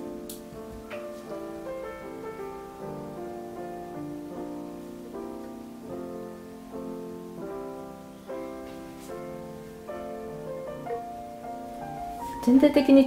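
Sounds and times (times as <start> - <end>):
gentle solo piano chords: 0.0 - 13.0.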